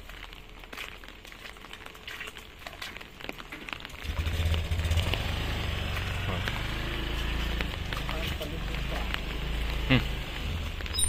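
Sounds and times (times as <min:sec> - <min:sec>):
drizzle and dripping water: 0:00.0 - 0:11.0
motorcycle engine running: 0:04.0 - 0:11.0.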